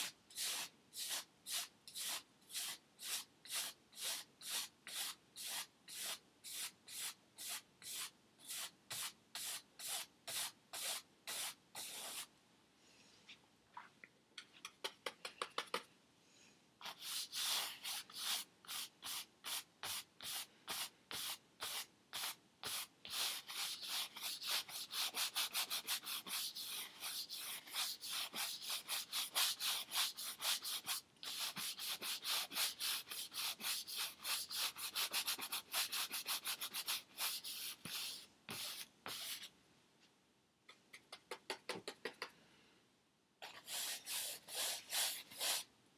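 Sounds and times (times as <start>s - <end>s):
paintbrush scrubbing on canvas: 16.8s - 39.5s, 43.4s - 45.7s.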